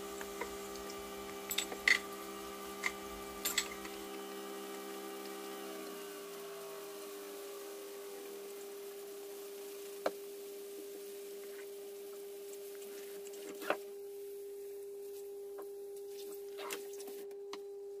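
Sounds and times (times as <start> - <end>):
steady hum: 0.0 - 12.8
hands rubbed under water: 16.0 - 17.2.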